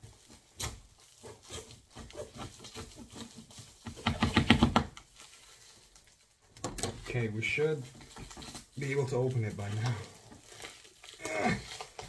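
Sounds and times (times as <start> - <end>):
plastic wrap crinkling: 0.0 - 12.0
knife scraping tape and plastic: 0.1 - 5.1.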